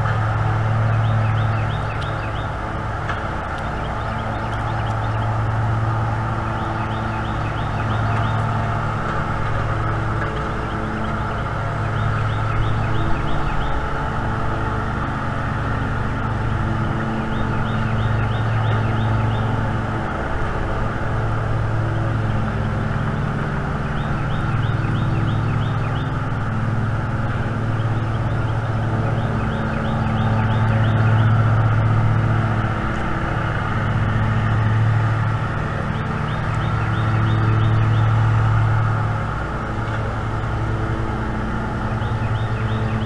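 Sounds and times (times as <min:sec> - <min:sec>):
engine droning: 0:00.0 - 0:43.0
songbird trilling: 0:41.9 - 0:43.0.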